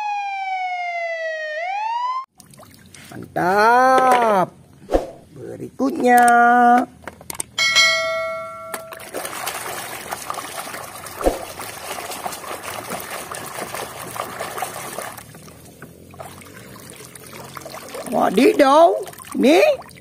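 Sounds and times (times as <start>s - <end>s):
water sloshing and trickling: 2.3s - 3.4s, 8.2s - 20.0s
ringing chime tone: 7.6s - 9.0s.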